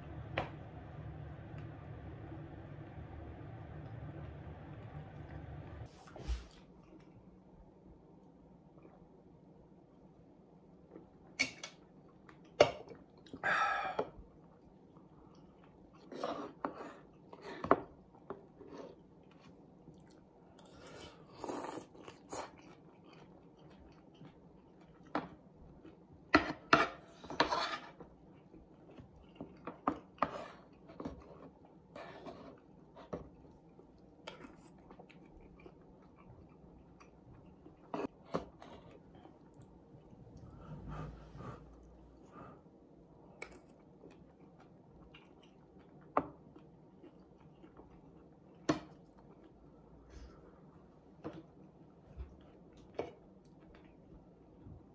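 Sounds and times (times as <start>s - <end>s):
person chewing: 18.6s - 26.1s, 33.4s - 42.3s, 43.3s - 49.8s
person slurping: 40.2s - 42.1s.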